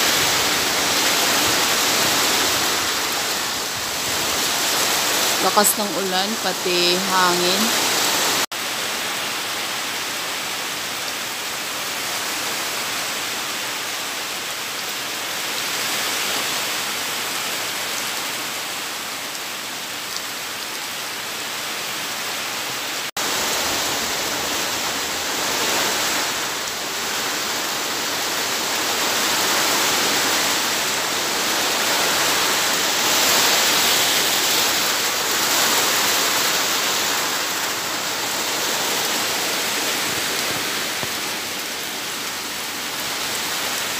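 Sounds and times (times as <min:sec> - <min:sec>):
strong wind: 0:00.0 - 0:06.0, 0:23.2 - 0:43.9
heavy rain pouring: 0:00.0 - 0:43.9.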